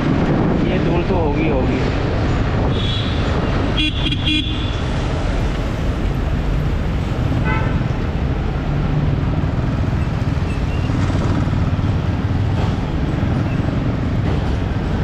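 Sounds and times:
road and traffic noise: 0.0 - 15.0
vehicle horn toot: 3.8 - 4.8, 7.4 - 7.8
motorcycle engine at low speed: 9.4 - 14.4.

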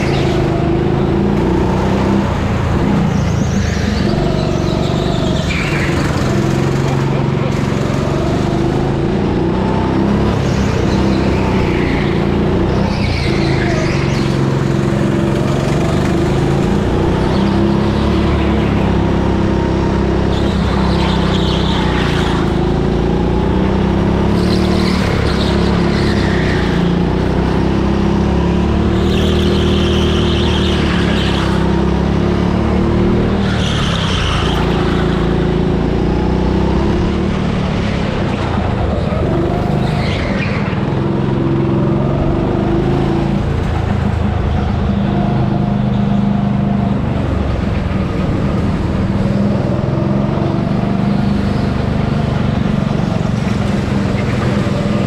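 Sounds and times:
tyre squeal: 0.0 - 7.9, 10.3 - 22.8, 24.2 - 27.7, 28.8 - 32.0, 33.2 - 35.8, 38.8 - 41.0
go-kart motor running: 0.0 - 55.0.

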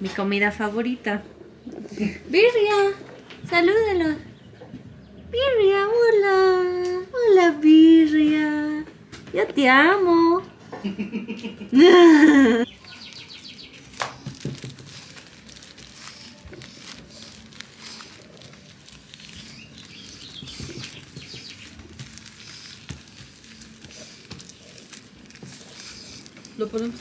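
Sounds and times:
birds chirping: 0.4 - 6.5, 12.2 - 14.6, 16.6 - 27.0
plastic sheeting crinkling: 12.1 - 27.0.

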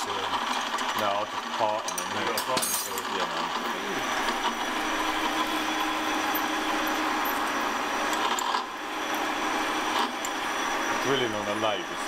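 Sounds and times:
metal lathe drilling: 0.0 - 12.0
motor hum: 3.0 - 12.0.

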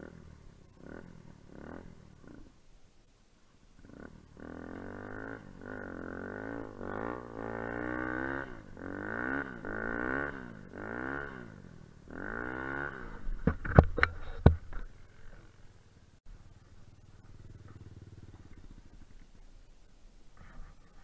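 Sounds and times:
dirt bike engine revving: 0.0 - 2.6, 3.8 - 13.8, 16.4 - 19.4.

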